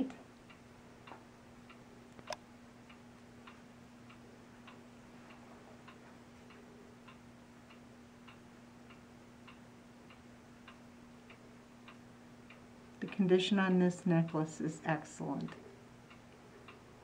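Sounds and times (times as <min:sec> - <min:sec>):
low electrical hum: 0:00.0 - 0:17.0
clock ticking: 0:05.9 - 0:16.8.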